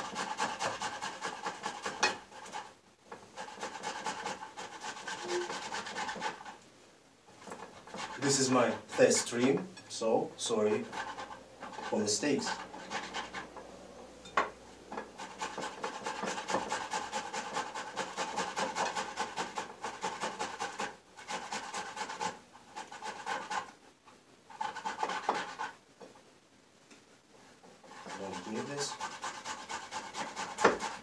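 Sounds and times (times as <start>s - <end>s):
carrot rasping on box grater: 0.0s - 6.6s, 15.2s - 23.7s, 24.6s - 25.8s, 27.8s - 31.0s.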